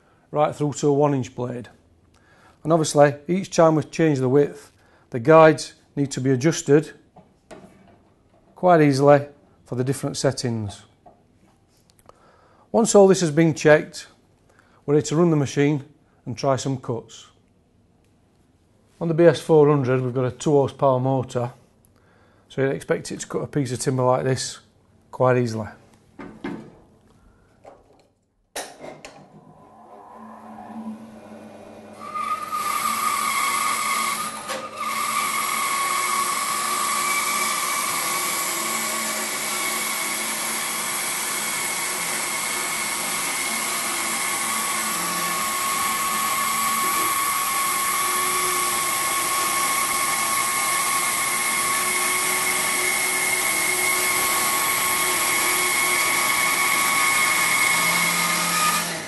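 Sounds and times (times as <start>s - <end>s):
bandsaw motor running: 29.6s - 59.0s
saw blade cutting timber: 29.7s - 59.0s.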